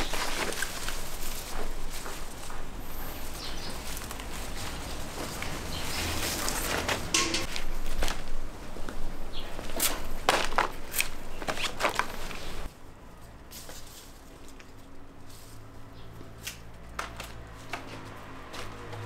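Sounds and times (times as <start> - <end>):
footsteps: 0.0 - 10.8
leafy branches rustling: 0.0 - 19.0.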